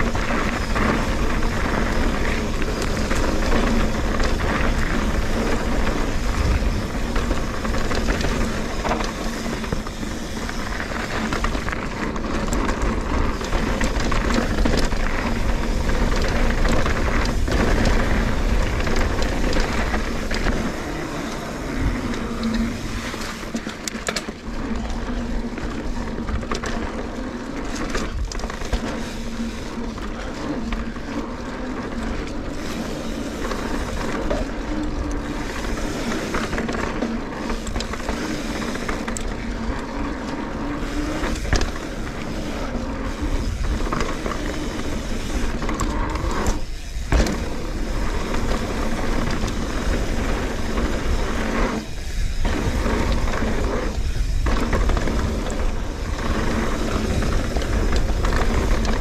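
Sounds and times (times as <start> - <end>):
bike clicks and knocks: 0.0 - 59.0
bike tyres rumbling on dirt: 0.0 - 59.0
wind buffeting microphone: 31.9 - 59.0.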